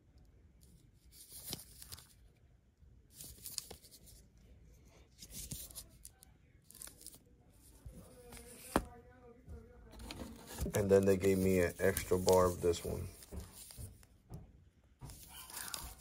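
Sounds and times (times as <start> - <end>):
paper-wrapped soap rustling on cardboard: 10.0 - 14.1.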